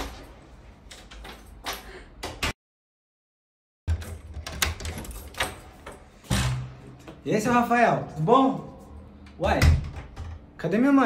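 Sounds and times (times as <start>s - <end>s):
door handle and latch rattling: 3.9s - 6.2s.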